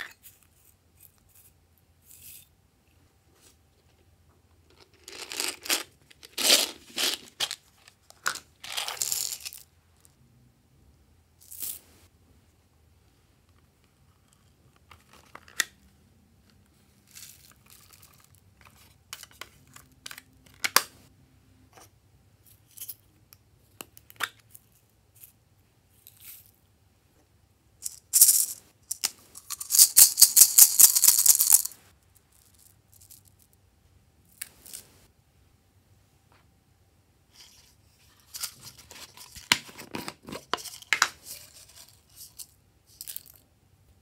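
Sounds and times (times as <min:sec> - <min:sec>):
beads rattling in plastic cup: 0:04.7 - 0:09.7, 0:17.1 - 0:18.4, 0:27.8 - 0:31.8.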